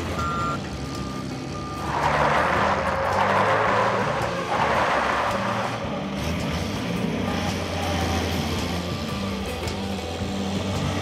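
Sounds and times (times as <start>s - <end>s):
reversing beeper: 0.0s - 2.8s
low background music: 0.0s - 11.0s
truck tyres churning through gravel: 1.8s - 6.8s.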